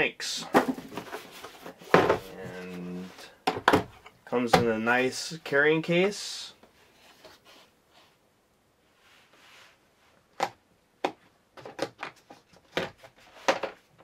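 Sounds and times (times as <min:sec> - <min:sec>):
plastic clicks and knocks: 0:03.4 - 0:04.7.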